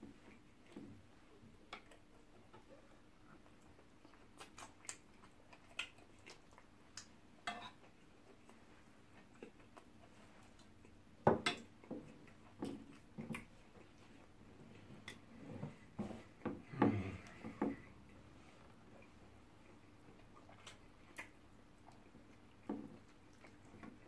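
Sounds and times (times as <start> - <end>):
chewing smacks: 1.7 - 11.0, 11.6 - 14.4, 18.8 - 24.0.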